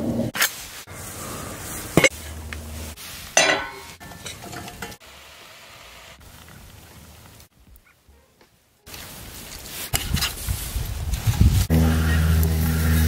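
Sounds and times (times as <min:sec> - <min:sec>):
saucepan and utensils clinking: 0:03.4 - 0:05.0.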